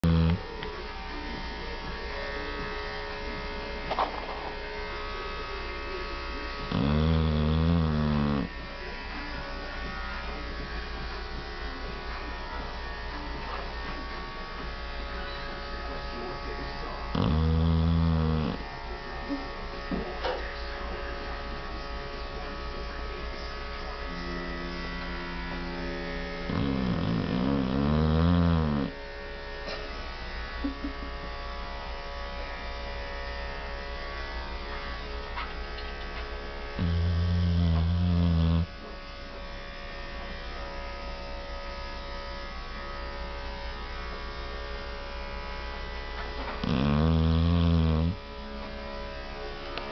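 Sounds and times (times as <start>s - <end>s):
dog snoring: 0.0s - 0.5s, 6.6s - 8.6s, 17.1s - 18.7s, 26.4s - 29.0s, 36.8s - 38.8s, 46.1s - 48.2s
steady electrical hum: 0.0s - 49.9s.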